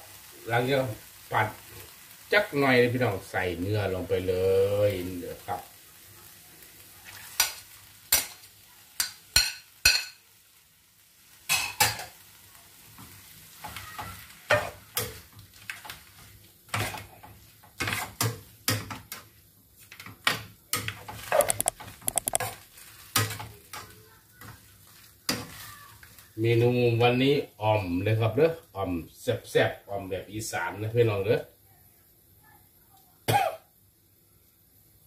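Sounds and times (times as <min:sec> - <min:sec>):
faint sizzle: 0:00.0 - 0:35.0.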